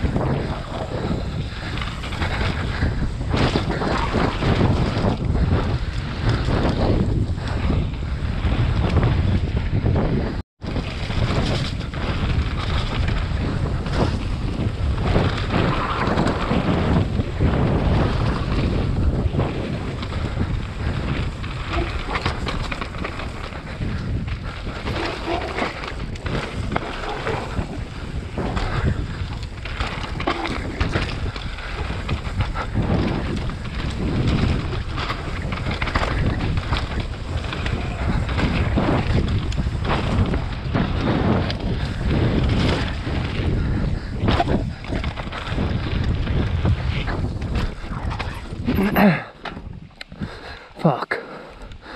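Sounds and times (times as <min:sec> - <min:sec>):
tyres rolling over dirt and rock: 0:00.0 - 0:50.2
bike knocking and rattling: 0:00.0 - 0:50.6
wind noise on microphone: 0:00.0 - 0:51.9.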